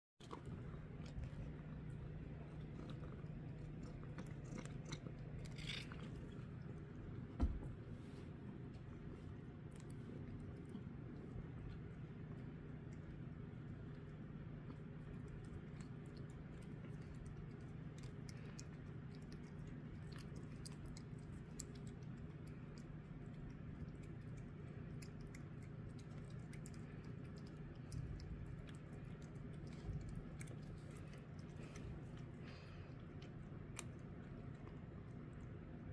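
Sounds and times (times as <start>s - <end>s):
cat licking: 0.2s - 35.9s
low steady hum: 0.2s - 35.9s
thump: 7.4s - 7.8s.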